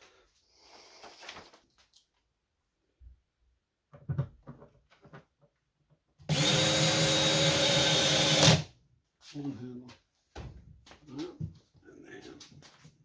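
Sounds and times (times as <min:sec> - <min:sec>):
plastic parts knocking: 0:03.9 - 0:05.6
power drill driving screw: 0:06.3 - 0:08.7.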